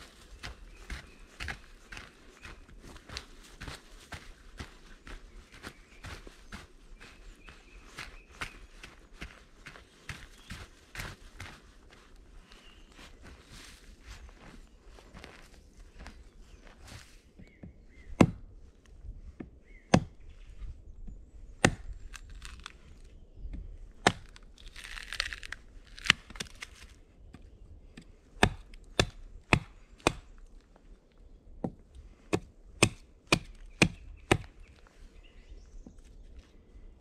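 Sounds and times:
hatchet chopping into log: 0:18.2 - 0:18.4, 0:19.9 - 0:20.1, 0:28.4 - 0:30.2, 0:32.3 - 0:34.5.

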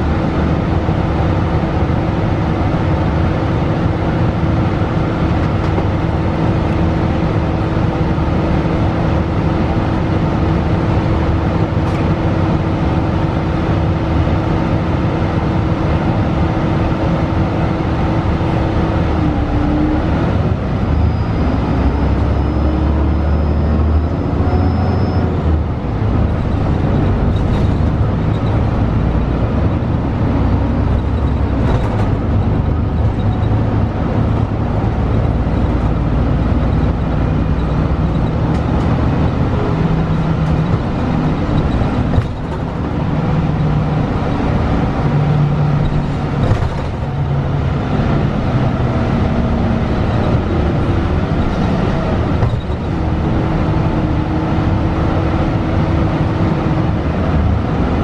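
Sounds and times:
bus engine rumbling: 0:00.0 - 0:58.0
knocks and rattles: 0:40.0 - 0:42.9.

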